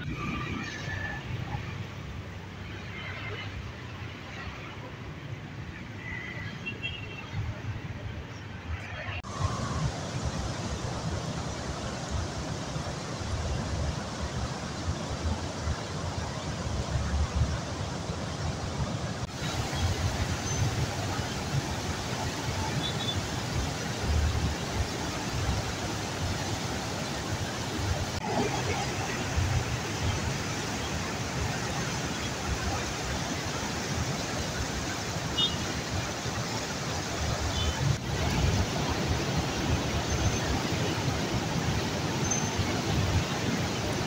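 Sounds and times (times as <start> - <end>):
river water rushing past piers: 0.0 - 44.0.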